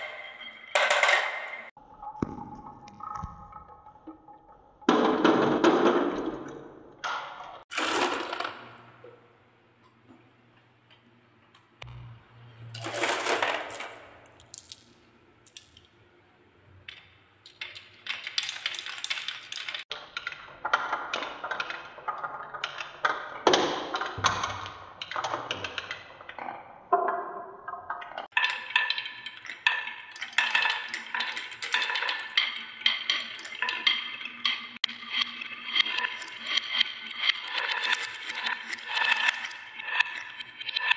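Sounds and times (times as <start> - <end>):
marbles rolling on wooden tracks: 0.0 - 1.7, 7.7 - 8.9, 12.7 - 15.9, 16.9 - 40.9.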